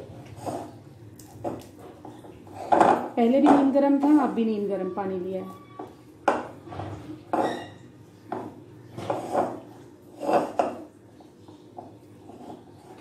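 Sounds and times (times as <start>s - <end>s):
bread dough squishing: 0.0s - 2.8s.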